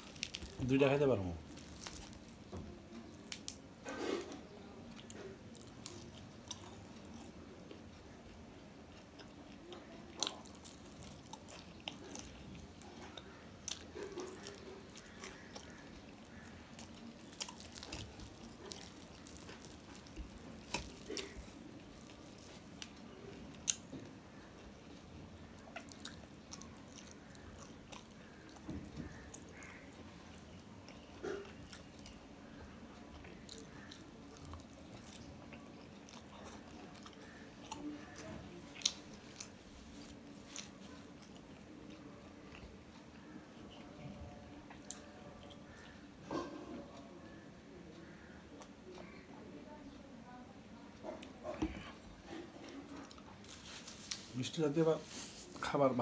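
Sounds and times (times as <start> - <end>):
bread tearing: 0.0 - 2.4, 13.8 - 23.8
person chewing flaky bread: 0.0 - 49.2, 50.9 - 55.9.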